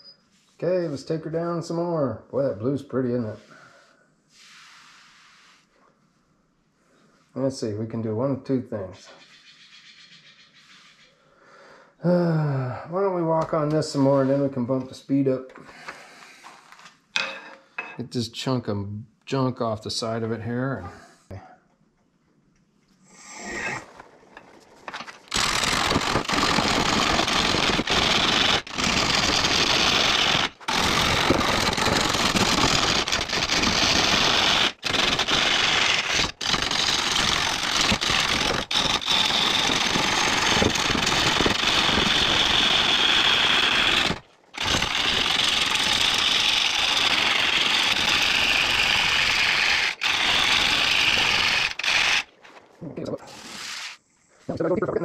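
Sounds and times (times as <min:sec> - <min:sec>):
gouge cutting wood on lathe: 0:25.3 - 0:52.3.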